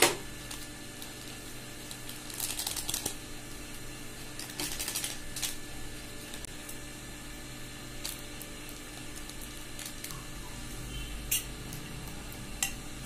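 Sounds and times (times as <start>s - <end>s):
snack packets crinkling: 0.4s - 3.2s, 4.4s - 5.6s, 8.0s - 10.1s.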